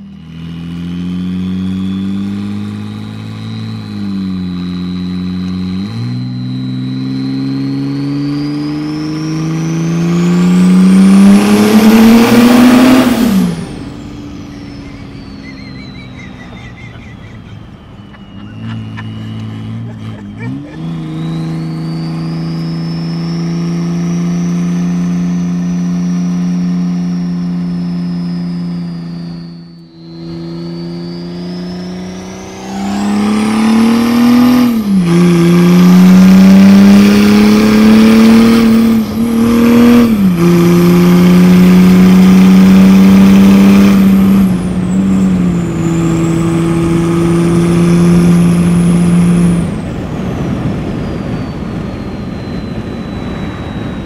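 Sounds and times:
diesel engine revving: 0:00.0 - 0:54.0
thin high whistle: 0:04.7 - 0:07.7, 0:14.2 - 0:19.8, 0:20.7 - 0:35.2, 0:50.7 - 0:54.0.

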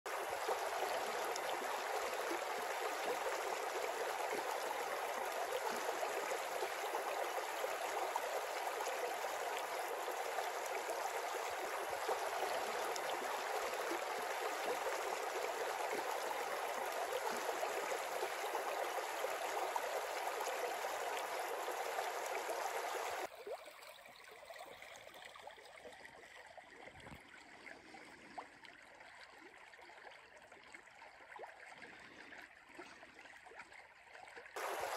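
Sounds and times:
river rushing over stones: 0:34.6 - 0:34.9.

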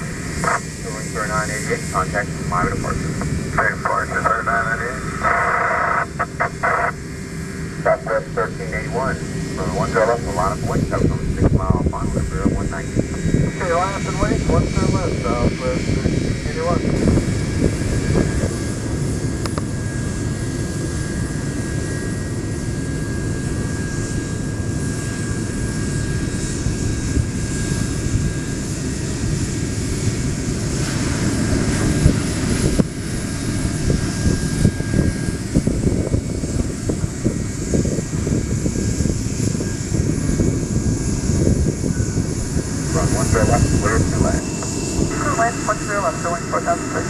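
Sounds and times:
jet engines landing: 0:00.0 - 0:47.0.

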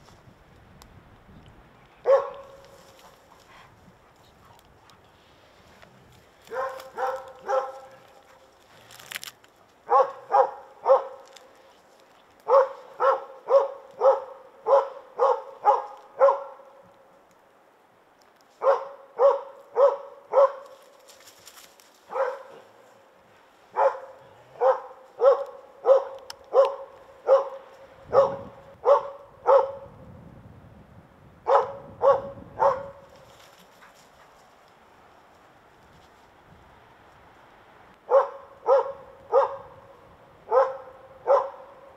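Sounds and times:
dog barking: 0:02.0 - 0:02.7, 0:06.5 - 0:08.0, 0:09.9 - 0:11.2, 0:12.5 - 0:16.6, 0:18.6 - 0:20.7, 0:22.1 - 0:22.7, 0:23.7 - 0:29.8, 0:31.5 - 0:33.0, 0:38.1 - 0:39.7, 0:40.5 - 0:41.8.

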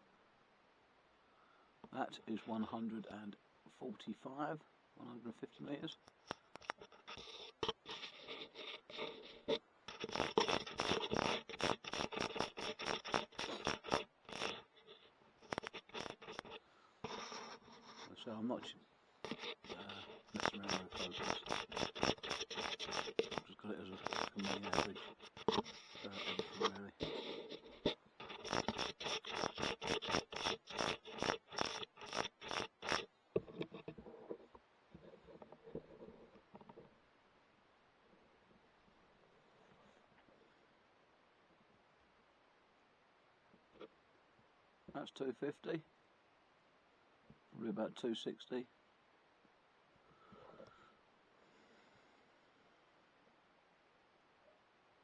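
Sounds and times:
faint rustling: 0:05.3 - 0:37.1, 0:38.0 - 0:40.8
sharp irregular clicks: 0:06.0 - 0:14.7, 0:15.4 - 0:17.3, 0:19.3 - 0:33.9
scratching handling noise: 0:06.0 - 0:37.0.

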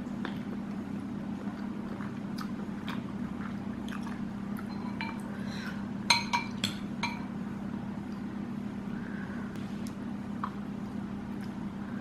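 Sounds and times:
steady low hum: 0:00.0 - 0:12.0
clinks on a ceramic plate: 0:06.1 - 0:07.3.

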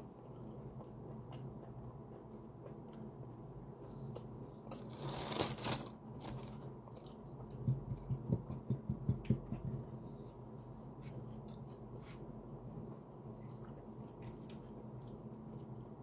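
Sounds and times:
paper bag crinkling: 0:04.8 - 0:06.6.

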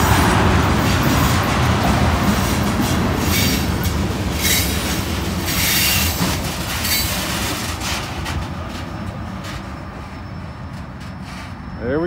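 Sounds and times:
steel wheels rumbling on rail: 0:00.0 - 0:12.0
high wheel squeals: 0:03.2 - 0:03.8, 0:04.4 - 0:12.0.

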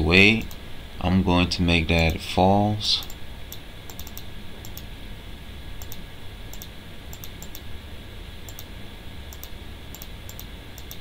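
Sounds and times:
low background hum: 0:00.0 - 0:11.0
computer mouse clicks: 0:03.0 - 0:04.9, 0:05.8 - 0:07.7, 0:08.5 - 0:08.7, 0:09.3 - 0:11.0.

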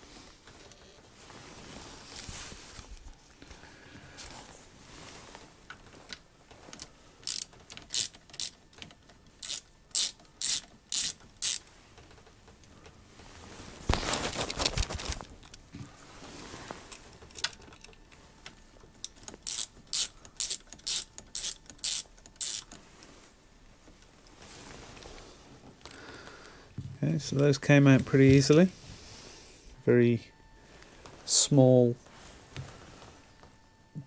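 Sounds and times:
socket ratchet clicking: 0:07.2 - 0:11.6, 0:19.0 - 0:22.8.

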